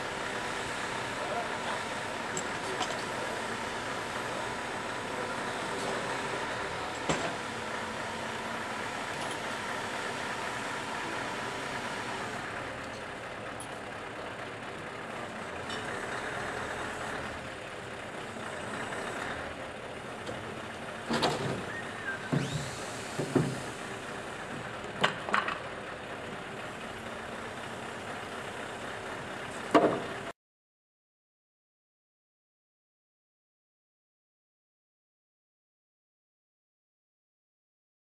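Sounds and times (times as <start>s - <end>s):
crane engine running: 0.0s - 30.3s.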